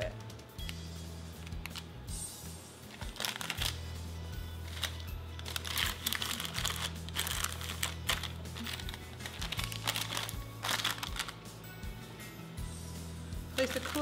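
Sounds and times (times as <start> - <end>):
background music: 0.0 - 14.0
tea towel rustling and crinkling: 2.9 - 3.9, 4.6 - 11.4, 13.6 - 14.0.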